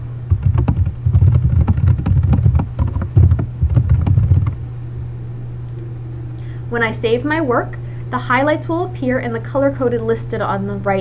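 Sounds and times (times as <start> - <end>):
low electrical hum: 0.0 - 11.0
typing on computer keyboard: 0.3 - 4.6.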